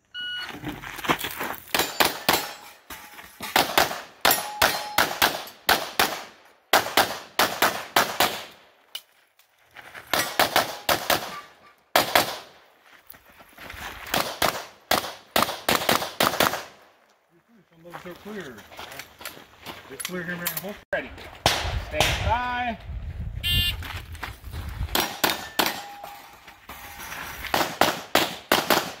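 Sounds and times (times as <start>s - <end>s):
pistol shots: 3.6s - 8.6s, 10.1s - 12.5s, 14.1s - 16.8s, 25.0s - 26.0s, 27.5s - 29.0s.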